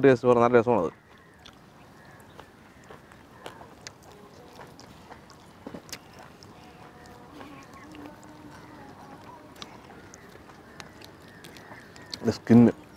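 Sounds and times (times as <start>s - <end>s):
person chewing: 1.1s - 12.9s.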